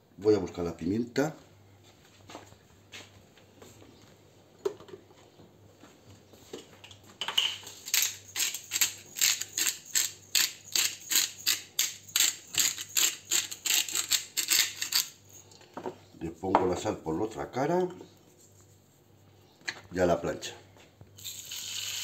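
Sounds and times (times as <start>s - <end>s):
pepper mill grinding: 7.4s - 15.5s, 21.2s - 22.0s.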